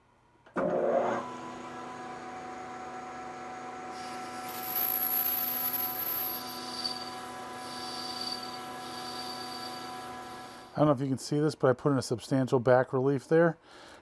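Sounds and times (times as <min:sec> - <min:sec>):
metal lathe whine: 0:03.9 - 0:10.8
faint high ring: 0:04.0 - 0:10.4
cutting tool squealing: 0:04.0 - 0:10.8.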